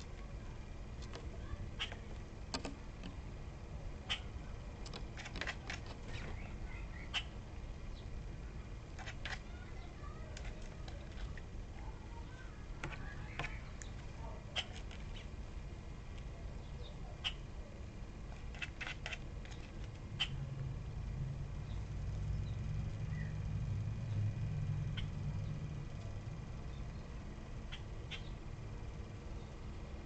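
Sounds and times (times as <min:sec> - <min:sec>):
steady low rumble: 0:00.0 - 0:30.0
bird clicks and calls: 0:01.8 - 0:03.2, 0:04.1 - 0:07.4, 0:12.8 - 0:14.0, 0:16.1 - 0:17.4, 0:18.5 - 0:20.4, 0:27.7 - 0:28.4
faint bird chirps: 0:06.0 - 0:08.2, 0:16.4 - 0:17.7, 0:21.6 - 0:25.7, 0:26.6 - 0:28.5.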